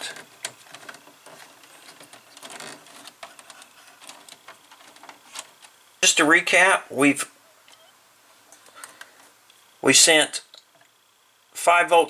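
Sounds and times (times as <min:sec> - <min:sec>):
wires rustling and clicking: 0:00.0 - 0:05.9, 0:07.5 - 0:09.6.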